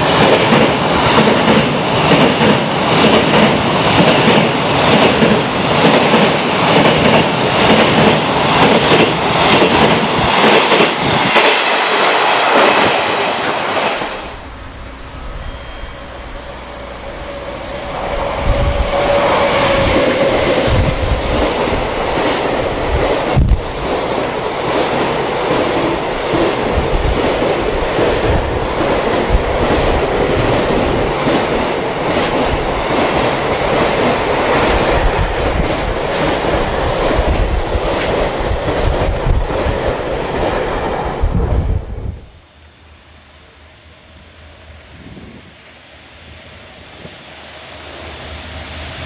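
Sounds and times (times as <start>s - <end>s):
wheels clickety-clack over rail joints: 0.0s - 14.0s, 18.2s - 41.7s
freight train rumbling past: 0.0s - 42.2s, 45.8s - 49.0s.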